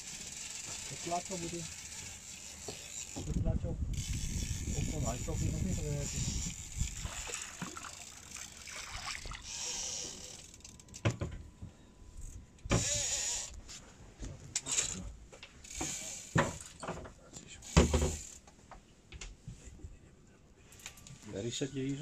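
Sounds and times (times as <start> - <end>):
fishing reel whirring: 0.0 - 11.0, 12.2 - 13.6, 15.6 - 16.4, 17.7 - 18.4.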